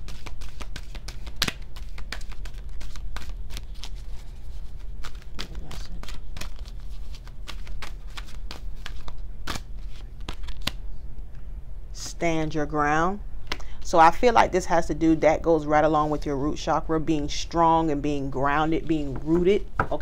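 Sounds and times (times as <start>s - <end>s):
cards shuffling: 0.0s - 10.8s
steady low hum: 0.0s - 20.0s.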